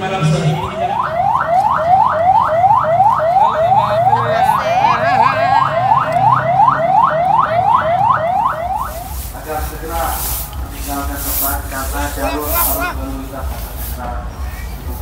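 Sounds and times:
siren whooping: 0:00.0 - 0:09.4
steady hiss: 0:08.8 - 0:15.0.

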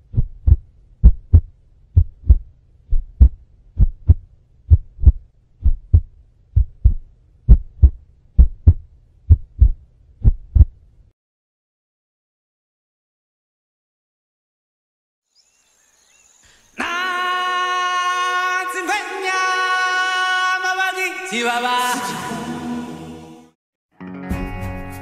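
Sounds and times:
heartbeat thumps: 0:00.0 - 0:10.8.

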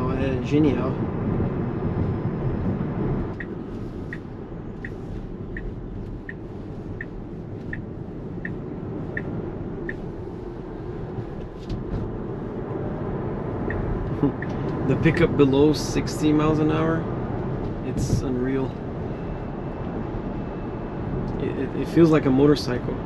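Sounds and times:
tyre and road noise: 0:00.0 - 0:23.0
turn signal ticking: 0:02.7 - 0:12.4, 0:13.5 - 0:14.9.

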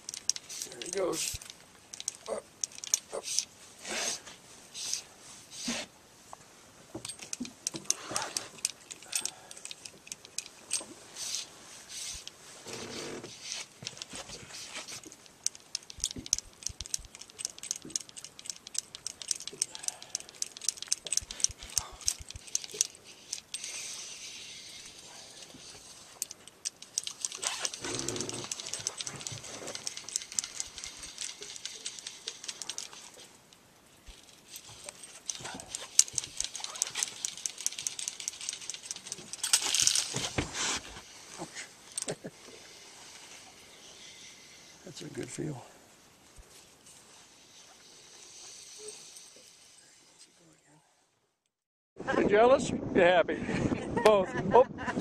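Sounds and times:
fishing reel clicking: 0:00.0 - 0:03.5, 0:07.0 - 0:12.3, 0:14.8 - 0:40.2
rustling of hands and clothing: 0:00.0 - 0:43.7, 0:44.9 - 0:49.0.

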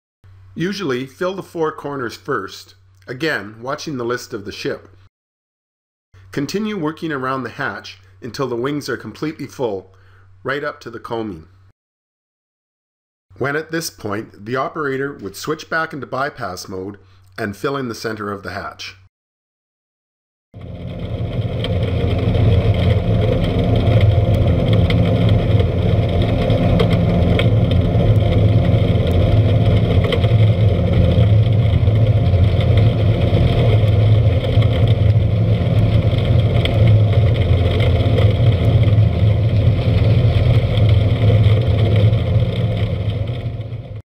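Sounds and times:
falling coal rushing: 0:20.6 - 0:44.0
machinery hum: 0:20.6 - 0:44.0.

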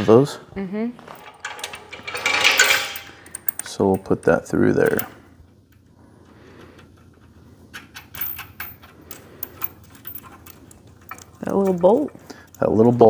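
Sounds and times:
metal chain clinking and rattling: 0:01.0 - 0:05.3, 0:07.7 - 0:13.0.

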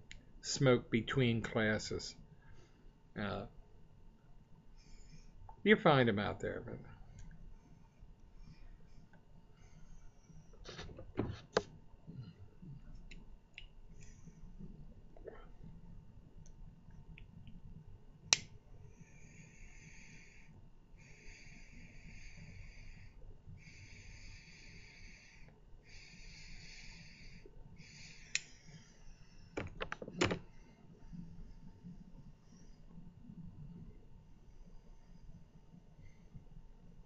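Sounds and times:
lighter clicking: 0:28.3 - 0:28.5.

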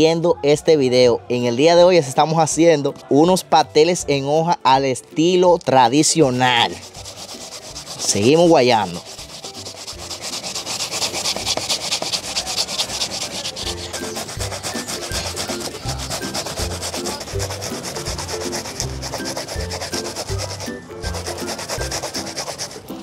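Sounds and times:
root scraping on metal grater: 0:06.0 - 0:23.0.

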